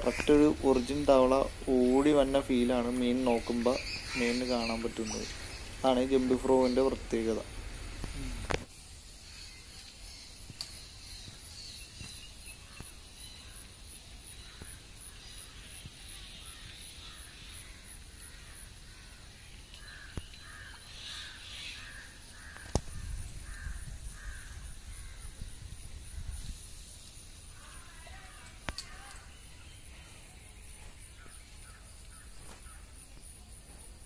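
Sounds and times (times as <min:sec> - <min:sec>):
crow cawing: 0:16.5 - 0:25.3.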